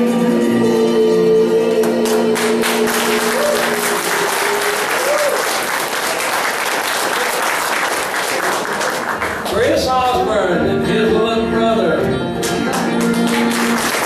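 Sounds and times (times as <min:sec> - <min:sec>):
audience applauding: 0:02.0 - 0:09.8, 0:12.4 - 0:14.0.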